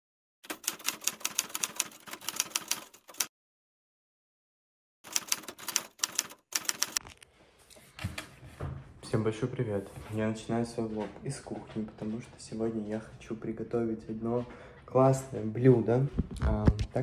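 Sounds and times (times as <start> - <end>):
typewriter keys clacking: 0.4 - 3.3, 5.1 - 7.1.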